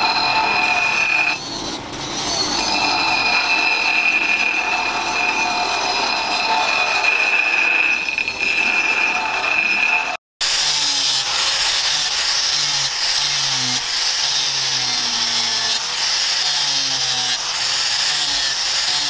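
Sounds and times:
grinding wheel whine on steel: 0.0 - 19.0.

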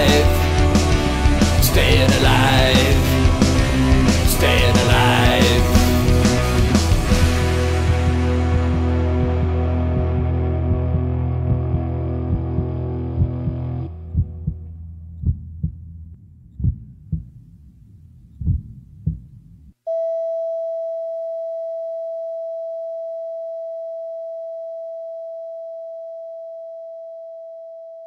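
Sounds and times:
heartbeat thumps: 0.0 - 15.9, 16.5 - 19.8
steady flatline beep: 19.9 - 28.0.

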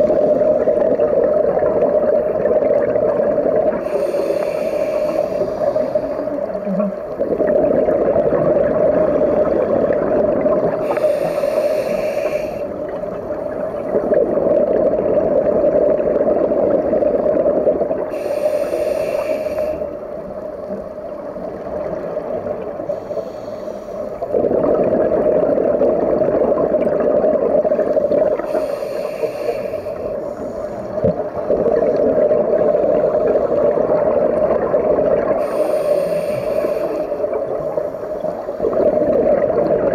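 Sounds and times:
underwater bubbling rumble: 0.0 - 18.4, 19.6 - 23.4, 24.1 - 39.9
diver inhaling through regulator: 3.7 - 7.3, 10.7 - 12.9, 18.0 - 20.1, 22.8 - 24.6, 27.8 - 32.1, 35.3 - 39.2.

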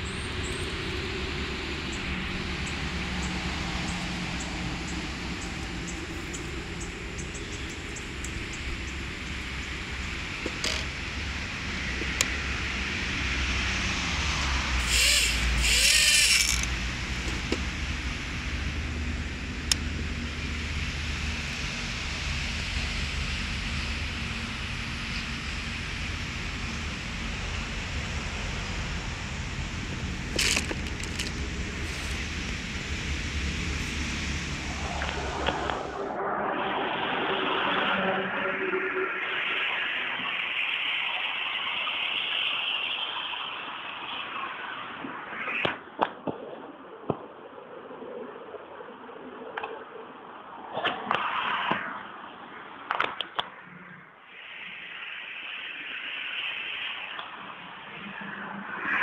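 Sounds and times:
drone motors whirring: 0.0 - 36.3
wind rumble: 0.0 - 40.6
handling noise: 10.4 - 11.0, 30.2 - 32.3.

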